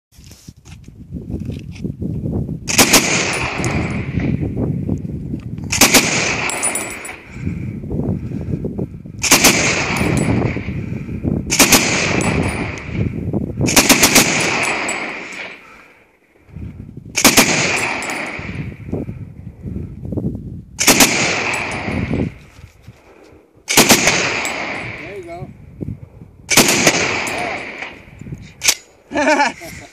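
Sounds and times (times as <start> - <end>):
gunfire echo: 2.7 - 4.4, 5.7 - 7.3, 9.2 - 10.7, 11.5 - 13.0, 13.7 - 15.9, 17.2 - 18.8, 20.8 - 22.3, 23.7 - 25.1, 26.5 - 28.1.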